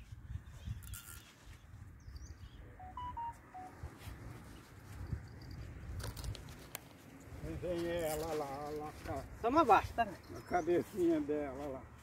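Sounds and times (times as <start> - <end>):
wind rumbling on microphone: 0.0 - 2.7, 3.8 - 8.1.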